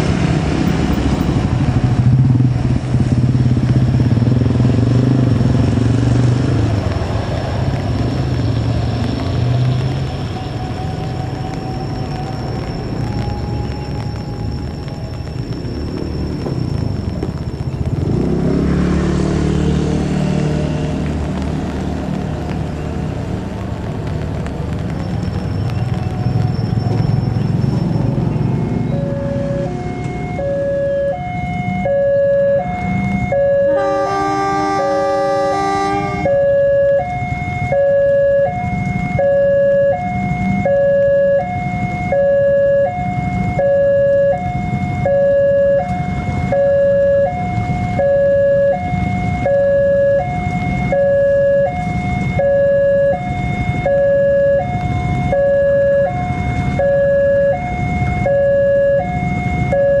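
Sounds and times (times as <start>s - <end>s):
diesel locomotive rumbling: 0.0s - 60.0s
two-tone warning alarm: 26.6s - 60.0s
locomotive horn: 33.3s - 37.0s.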